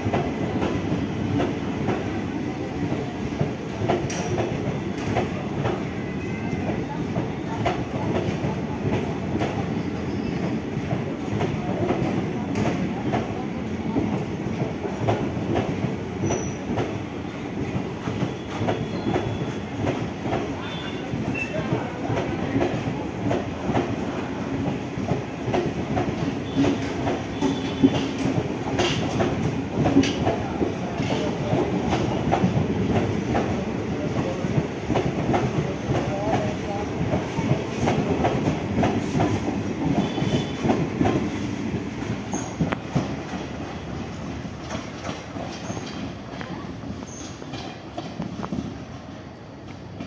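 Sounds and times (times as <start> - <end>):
train wheels clattering over rail joints: 24.6 - 48.8.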